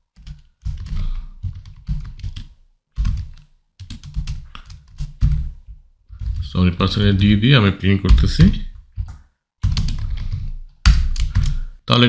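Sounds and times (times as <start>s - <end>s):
typing on computer keyboard: 0.1s - 5.5s, 9.0s - 11.7s.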